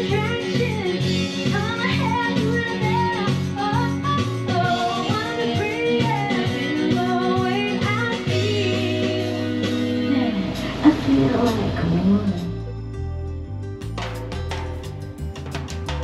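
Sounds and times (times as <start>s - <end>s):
woman singing into microphone: 0.0s - 12.3s
backing track with guitar and beat: 0.0s - 16.0s.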